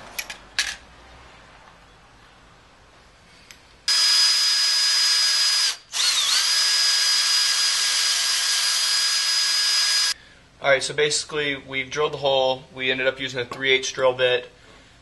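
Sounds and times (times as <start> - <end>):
cordless drill drilling metal: 3.9 - 10.2.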